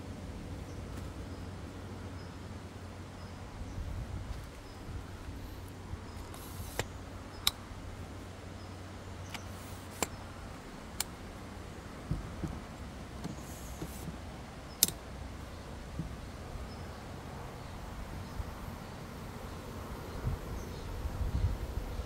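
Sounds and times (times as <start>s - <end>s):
low wind rumble: 0.0s - 22.0s
soft knocks: 12.0s - 14.2s, 15.9s - 16.3s.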